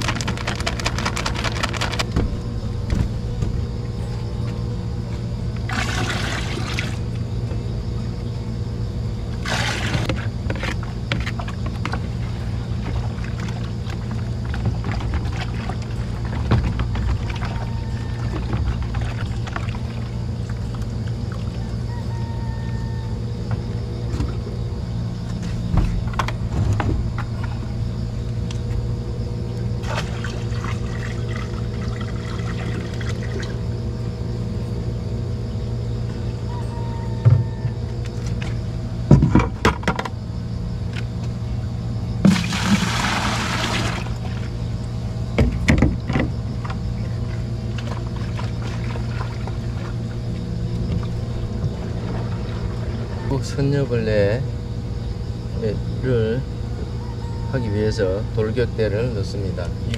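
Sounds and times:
water splashing and pouring: 5.7 - 7.0, 42.2 - 44.3.

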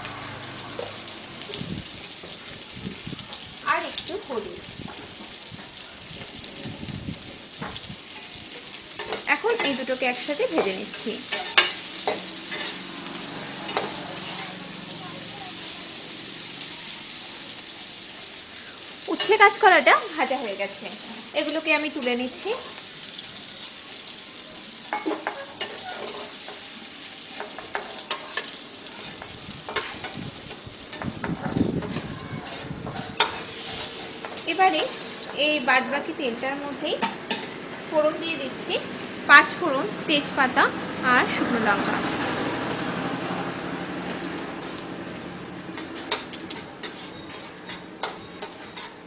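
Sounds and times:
oil sizzling in a pan: 0.0 - 49.0
metal spatula scraping a pan: 8.1 - 14.6, 24.9 - 30.2, 30.9 - 35.7, 46.0 - 49.0.

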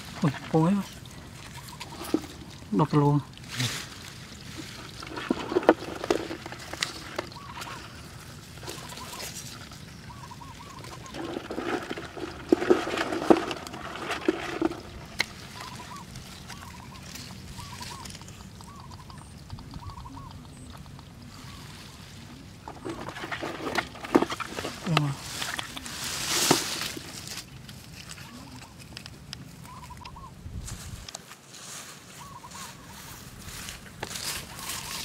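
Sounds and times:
rustling leafy vines: 0.0 - 19.0, 21.2 - 35.0
faint warbling calls: 6.9 - 12.3, 14.5 - 26.1, 29.6 - 30.4.

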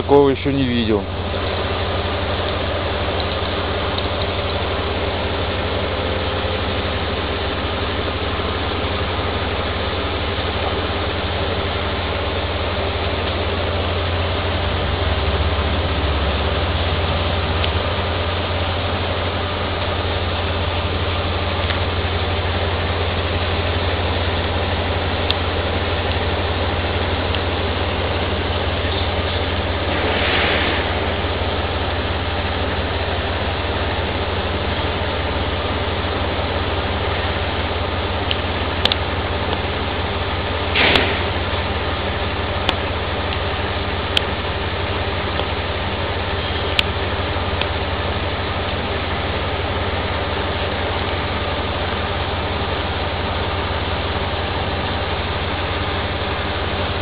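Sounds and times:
engine running with low hum: 0.0 - 57.0
brief hiss: 29.9 - 31.2.

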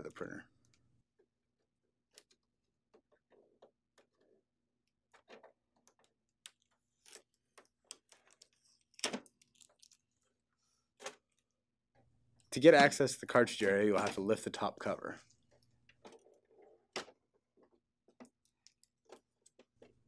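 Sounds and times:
clicks and taps of plastic parts: 13.6 - 14.2.

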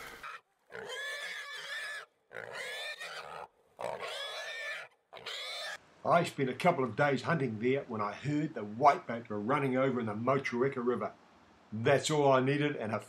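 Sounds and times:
pig squealing: 0.0 - 5.8.

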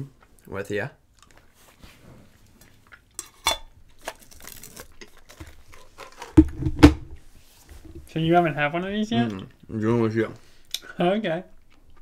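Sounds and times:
candies rattling in metal tin: 4.0 - 6.5.

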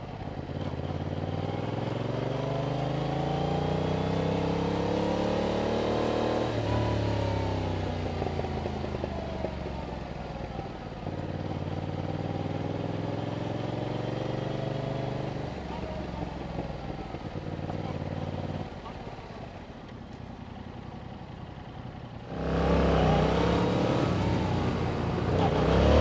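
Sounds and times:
motorcycle engine revving: 0.0 - 19.6, 22.1 - 26.0.

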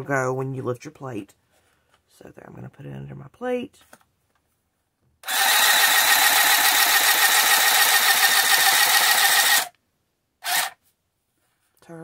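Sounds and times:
handheld sewing machine running: 5.2 - 9.8, 10.4 - 10.8.

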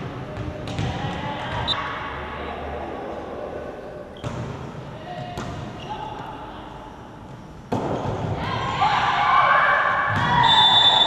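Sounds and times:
volleyball struck: 7.7 - 8.4.

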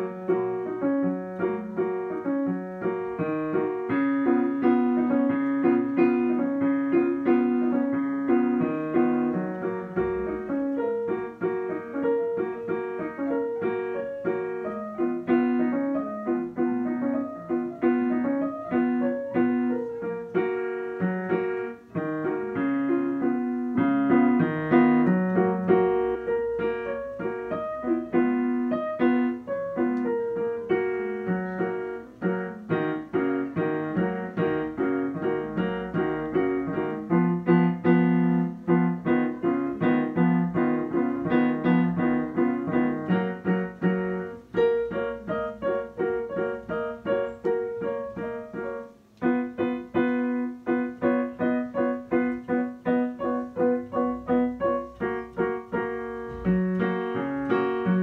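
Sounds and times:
digital piano playing: 0.0 - 58.0.

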